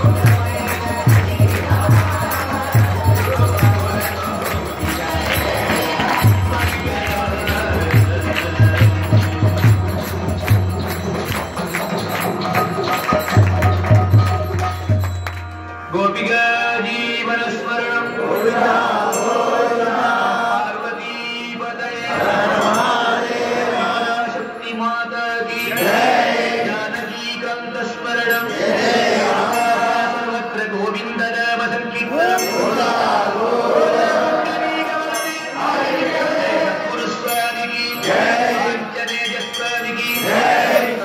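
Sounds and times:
voices chanting a sung melody: 0.0s - 11.1s, 16.6s - 24.4s, 25.5s - 27.2s, 28.3s - 30.4s, 32.1s - 41.0s
steady drum beat: 0.0s - 15.3s
clashing metal percussion: 0.0s - 16.4s, 37.2s - 41.0s.

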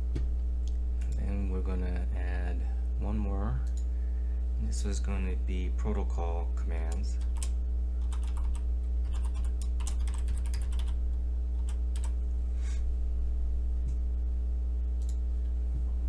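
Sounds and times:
low electrical hum: 0.0s - 16.0s
computer keyboard typing: 7.2s - 11.0s, 11.6s - 12.2s.

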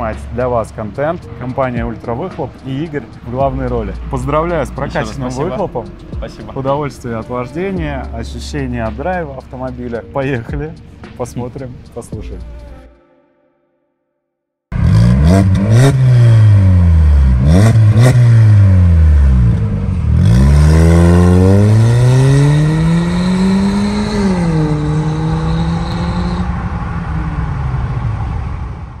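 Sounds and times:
car engine revving: 0.0s - 10.1s, 14.7s - 29.0s
exhaust cracks: 14.7s - 29.0s.

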